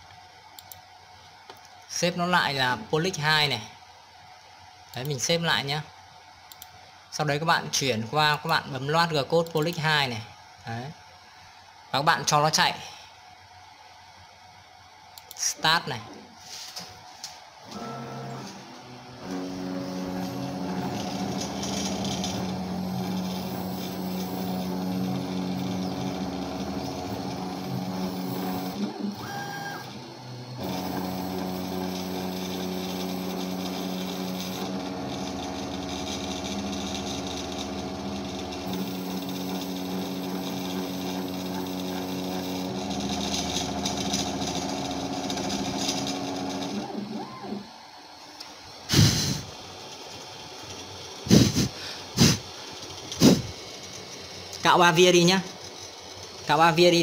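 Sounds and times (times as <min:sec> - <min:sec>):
router spindle milling: 0:19.2 - 0:46.9.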